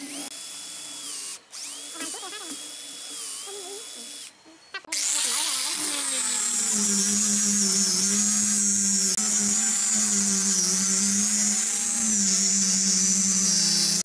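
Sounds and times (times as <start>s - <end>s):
angle grinder sanding wood: 4.9s - 14.0s.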